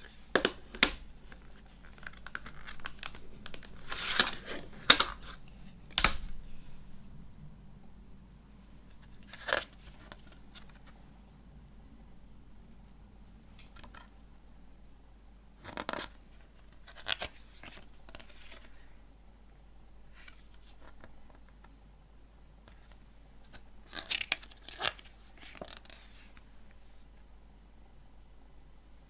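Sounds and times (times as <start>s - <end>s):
paper pages turning: 0.7s - 6.3s, 9.0s - 11.0s, 15.6s - 18.8s, 22.7s - 26.4s.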